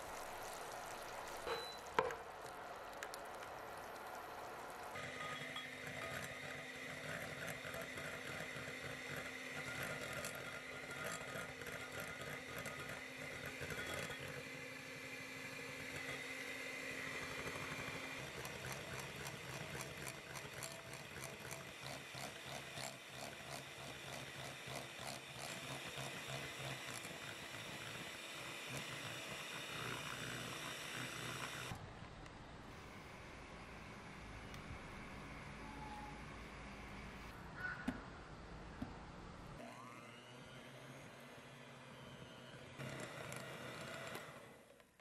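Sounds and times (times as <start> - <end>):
electric hand mixer running: 4.0 - 31.8, 39.6 - 44.8.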